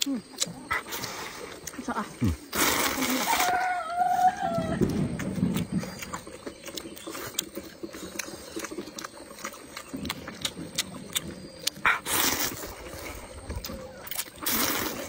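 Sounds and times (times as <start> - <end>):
wet chewing and lip smacking: 0.0 - 15.0
slurping noodles: 0.7 - 3.6, 11.8 - 15.0.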